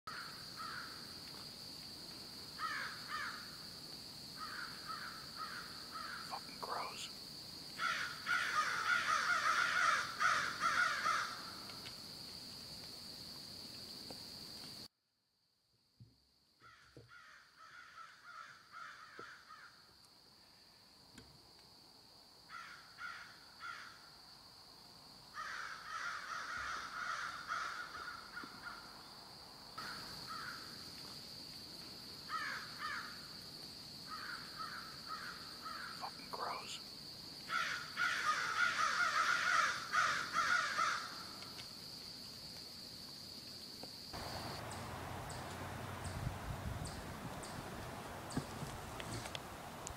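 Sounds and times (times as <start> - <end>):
crows cawing: 0.1 - 1.0, 2.6 - 3.5, 4.4 - 6.8, 7.8 - 11.6, 16.6 - 19.8, 22.5 - 24.0, 25.4 - 28.8, 29.8 - 30.7, 32.3 - 33.2, 34.1 - 36.5, 37.5 - 41.3.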